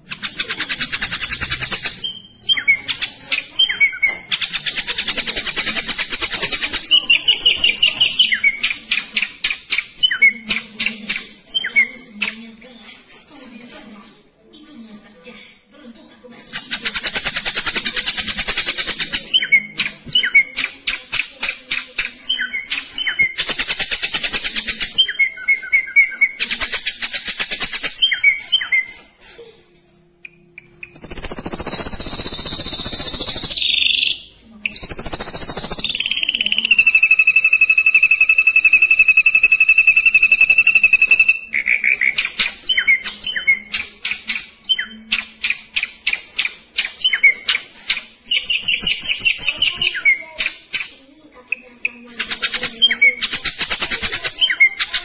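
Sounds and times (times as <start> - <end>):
long whistled bird tone: 35.2 - 41.5.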